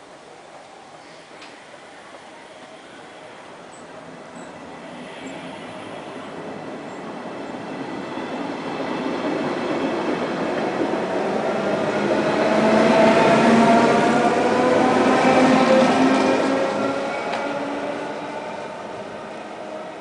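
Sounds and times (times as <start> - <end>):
electric train rumbling past: 0.0 - 20.0
multi-tone train whine: 0.0 - 20.0.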